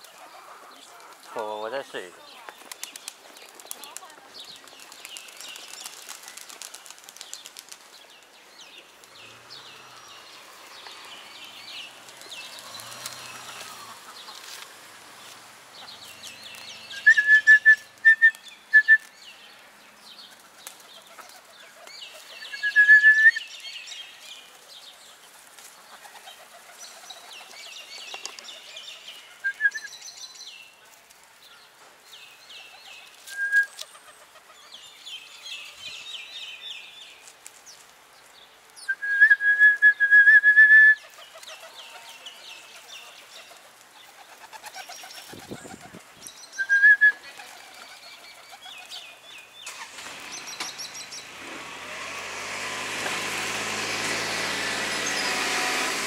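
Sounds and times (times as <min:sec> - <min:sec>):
birds chattering: 0:00.0 - 0:14.6
pigeon wings flapping: 0:02.4 - 0:08.0, 0:43.4 - 0:46.1, 0:47.3 - 0:48.0.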